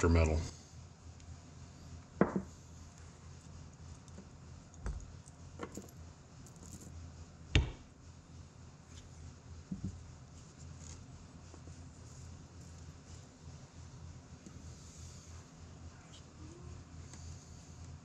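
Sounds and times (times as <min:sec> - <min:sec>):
low steady hum: 0:00.0 - 0:18.0
metal parts clinking and knocking: 0:04.9 - 0:06.9.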